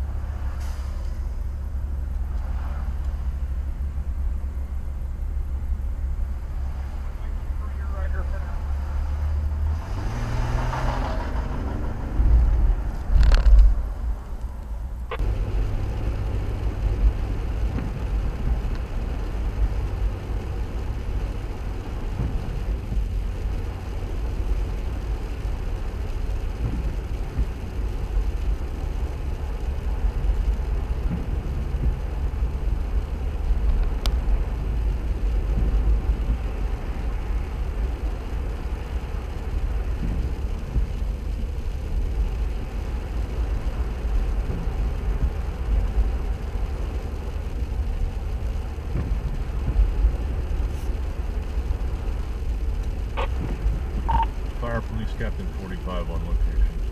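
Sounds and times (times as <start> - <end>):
engine idling from inside cab: 0.0 - 8.6, 14.6 - 56.9
truck engine rising in pitch: 8.5 - 13.1, 53.2 - 55.6.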